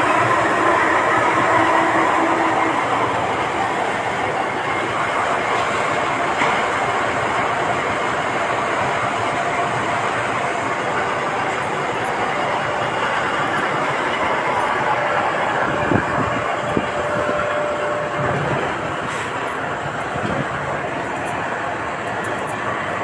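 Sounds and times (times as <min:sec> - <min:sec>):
machinery rumbling and rattling: 0:00.0 - 0:23.0
humming tone: 0:13.5 - 0:21.4.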